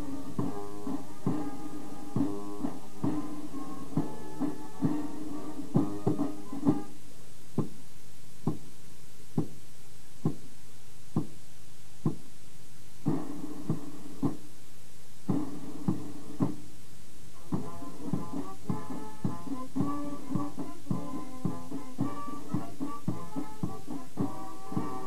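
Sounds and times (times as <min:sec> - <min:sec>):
bass drum beating march time: 0:00.0 - 0:06.9, 0:13.0 - 0:14.5, 0:15.2 - 0:16.7, 0:17.4 - 0:25.0
military band playing: 0:00.0 - 0:06.9, 0:17.4 - 0:25.0.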